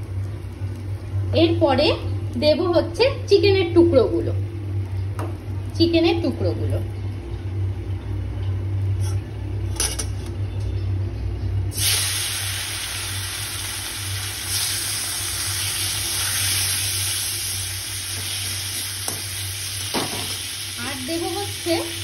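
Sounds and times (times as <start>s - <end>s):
low steady hum: 0.0s - 22.0s
chicken sizzling in hot oil: 11.7s - 22.0s.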